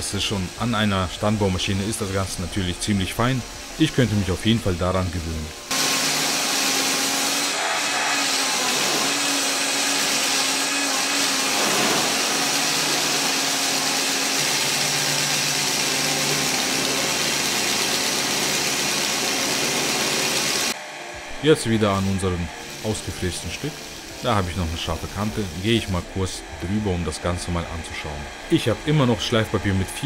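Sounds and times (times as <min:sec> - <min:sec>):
sanding flaps brushing wood: 0:04.7 - 0:20.8
drill press motor whir: 0:05.5 - 0:30.0.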